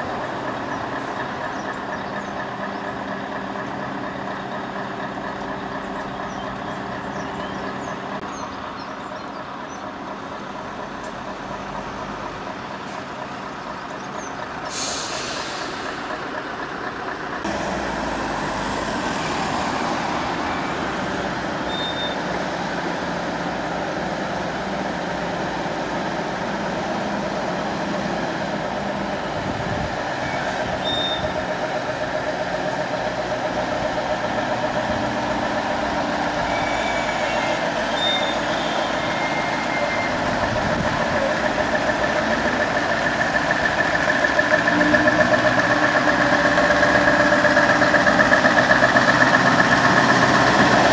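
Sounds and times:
diesel truck engine running: 0:00.0 - 0:50.9
air brakes hissing: 0:14.6 - 0:16.3.

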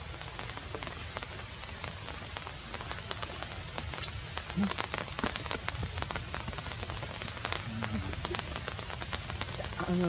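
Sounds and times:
rain pattering on leaves: 0:00.0 - 0:10.0
low rumble: 0:05.9 - 0:10.0.

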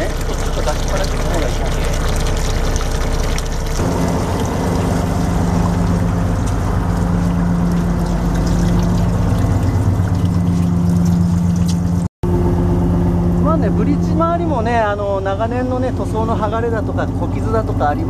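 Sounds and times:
water running into plastic tub: 0:00.0 - 0:12.1
boat engine running: 0:00.0 - 0:18.0.

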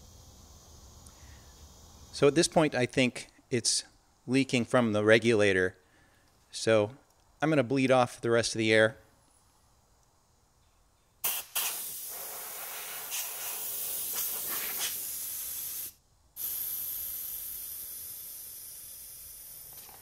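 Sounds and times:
compressed air hissing from hose: 0:00.0 - 0:02.3, 0:11.2 - 0:20.0.

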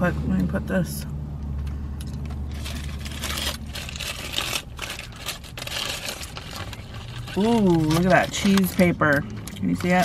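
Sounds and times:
paper wrapper crinkling: 0:02.4 - 0:10.0.

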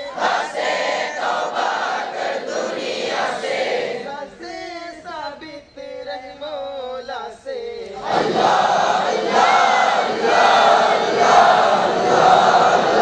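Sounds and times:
group of students chanting: 0:00.0 - 0:04.4, 0:08.0 - 0:13.0
single voice singing: 0:00.0 - 0:13.0.

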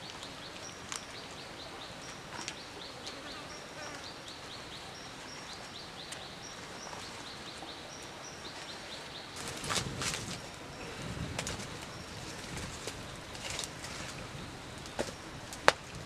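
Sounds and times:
wood fire crackling: 0:09.4 - 0:16.0.

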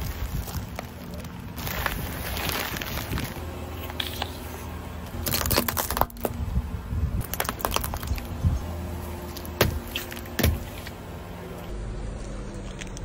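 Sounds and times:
plastic containers crushing: 0:00.0 - 0:04.4, 0:05.2 - 0:06.4, 0:07.2 - 0:08.4.

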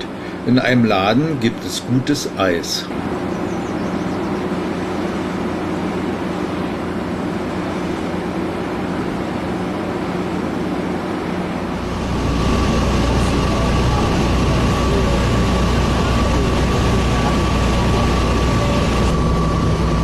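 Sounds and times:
high whine: 0:00.0 - 0:20.0
low hum: 0:00.0 - 0:20.0.

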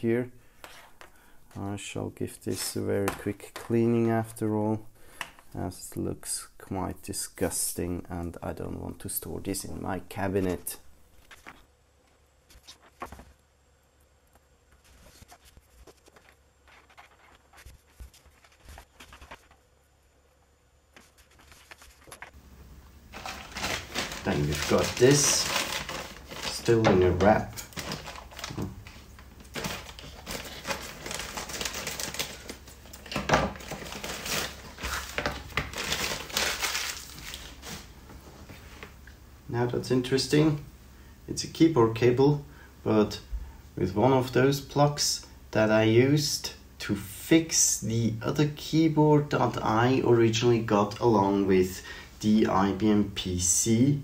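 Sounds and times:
tissue rubbing on cable: 0:14.4 - 0:19.7, 0:20.9 - 0:22.4, 0:23.1 - 0:26.8
plastic bag crinkling: 0:23.1 - 0:37.9.

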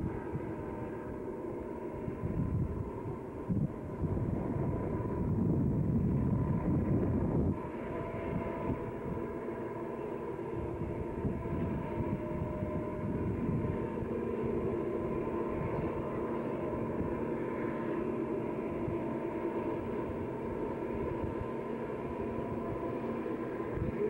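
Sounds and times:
distant diesel train rumble: 0:00.0 - 0:24.0
humming tones: 0:00.0 - 0:24.0
wind on microphone: 0:02.0 - 0:09.4, 0:10.5 - 0:17.2, 0:23.6 - 0:24.0.

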